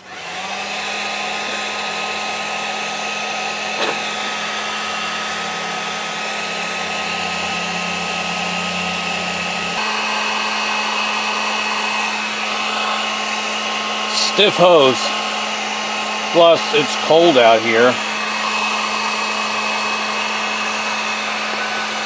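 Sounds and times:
heat gun blowing: 0.0s - 22.0s
heat gun motor hum: 0.0s - 22.0s.

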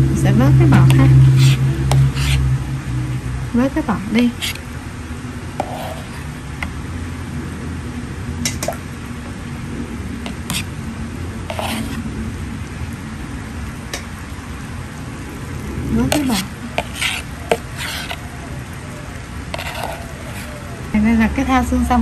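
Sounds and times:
ladle stirring liquid in a bowl: 0.8s - 2.5s, 4.3s - 4.7s, 5.6s - 6.3s, 10.2s - 10.7s, 11.5s - 12.0s, 16.1s - 18.8s, 19.4s - 20.6s.

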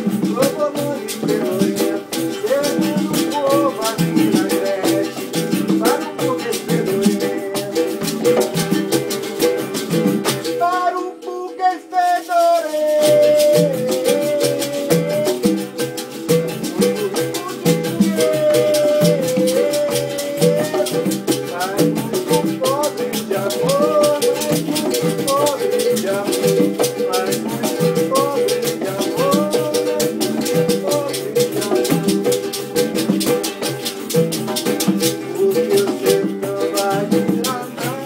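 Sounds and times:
acoustic guitar: 0.0s - 38.0s
berimbau: 0.0s - 38.0s
congas: 0.0s - 38.0s
pandeiro jingle: 0.0s - 38.0s.

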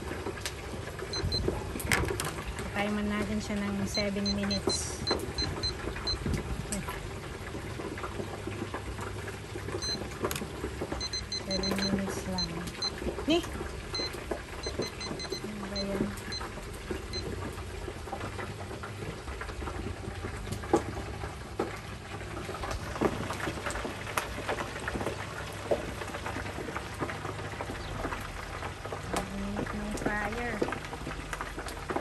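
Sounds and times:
fish deep-frying in hot oil: 0.0s - 32.0s
kitchen timer beeps: 1.1s - 1.6s, 3.5s - 7.0s, 9.8s - 10.1s, 10.9s - 17.3s.

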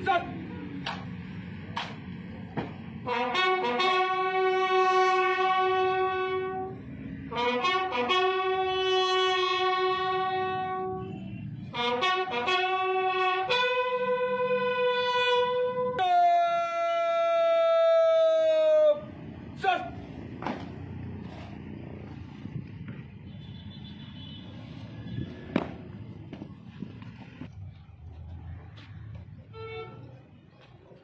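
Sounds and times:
bugle call: 3.0s - 6.7s, 7.3s - 20.0s.

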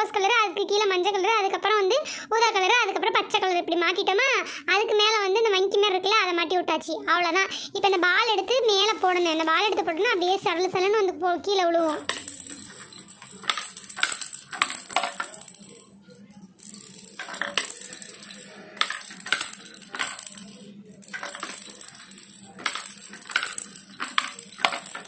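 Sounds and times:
plastic balls rattling on tracks: 7.9s - 11.0s, 11.8s - 25.0s.

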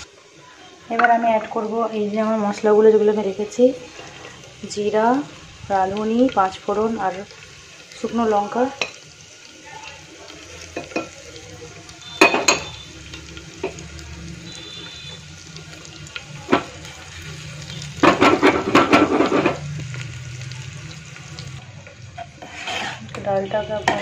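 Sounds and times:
spices sizzling in hot oil: 0.0s - 24.0s
spoon scraping a pot: 22.1s - 23.3s.

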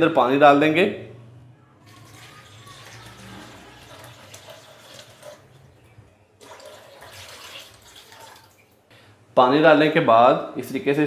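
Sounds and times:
water pouring into a pot: 1.9s - 5.7s, 6.4s - 8.8s.

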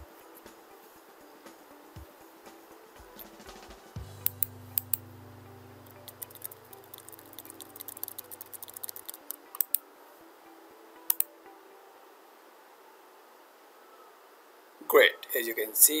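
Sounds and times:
low steady hum: 4.0s - 11.8s
keyboard typing: 5.8s - 9.8s.

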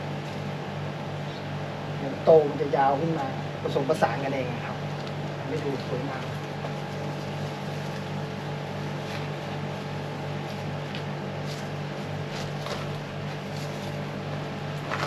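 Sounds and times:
low machine hum: 0.0s - 15.0s
rustling plants: 4.8s - 15.0s.

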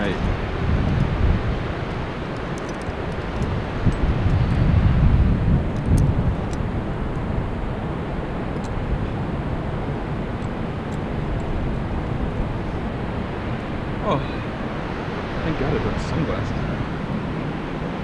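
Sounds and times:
wind buffeting microphone: 0.0s - 18.0s
climbing hardware clicks: 2.3s - 4.6s.

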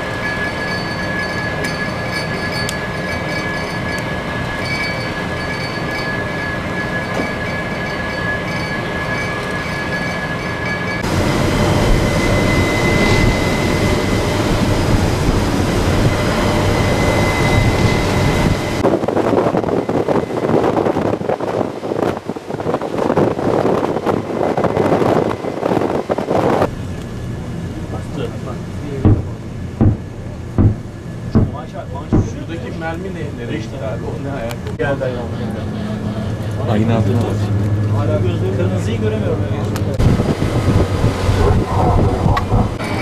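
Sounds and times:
machinery drone: 0.0s - 43.0s
thin high whine: 0.0s - 43.0s
gusty wind on microphone: 11.0s - 26.7s, 39.9s - 43.0s
rough rush of noise: 11.0s - 28.1s, 35.2s - 43.0s.

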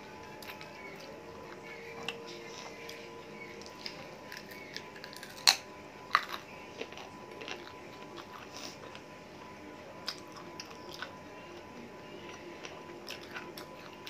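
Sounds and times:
chewing on a bone: 0.0s - 14.0s
bone crunching: 3.6s - 9.1s.

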